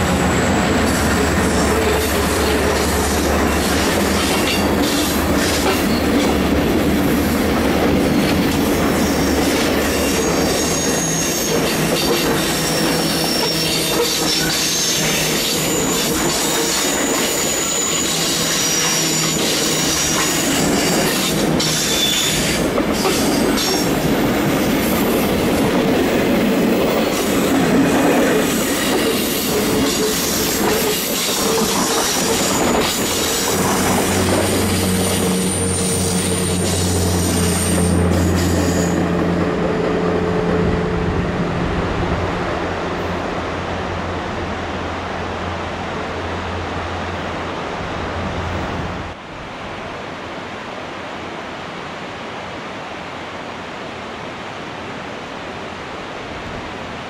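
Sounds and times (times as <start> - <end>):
steel wheels rumbling on rail: 0.0 - 49.2
high-pitched wheel squeals: 9.0 - 23.3, 31.8 - 39.0.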